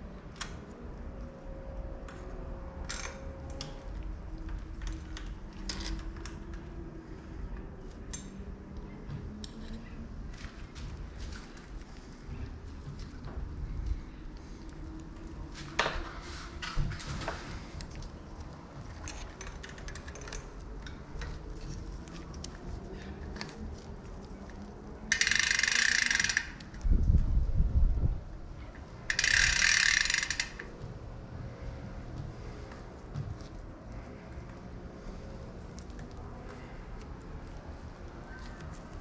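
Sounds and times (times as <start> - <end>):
bicycle chain clicking: 4.8 - 6.5, 24.6 - 26.9, 29.1 - 30.7
freewheel ratchet buzzing: 25.1 - 26.8, 29.1 - 30.7.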